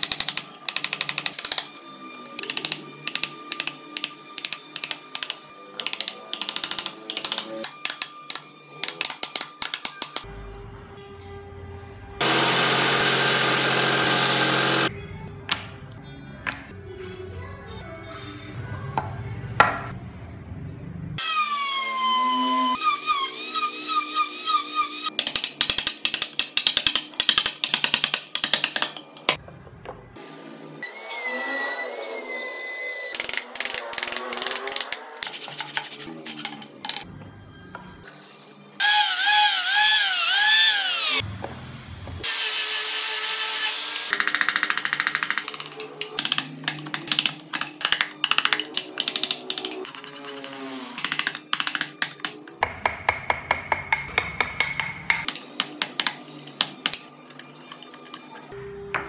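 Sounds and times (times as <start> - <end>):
rotary carving tool whining: 12.2 - 14.9, 21.2 - 25.1, 30.8 - 35.2, 38.8 - 41.2, 42.2 - 52.3.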